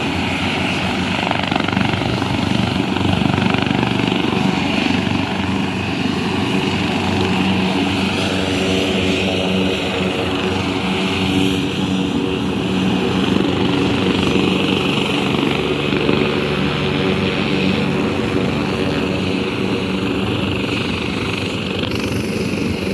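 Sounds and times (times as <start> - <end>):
helicopter engines and rotor droning: 0.0 - 22.9.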